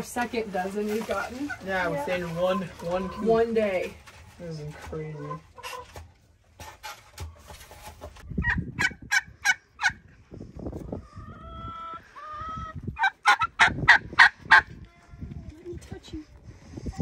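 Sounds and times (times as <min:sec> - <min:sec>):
turkey gobbling: 0:08.4 - 0:10.0, 0:11.0 - 0:14.7.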